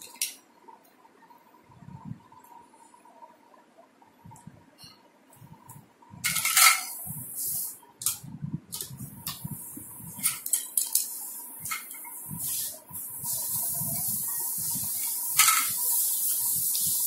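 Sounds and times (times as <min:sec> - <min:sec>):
plastic toy utensils clicking: 0:10.2 - 0:11.9.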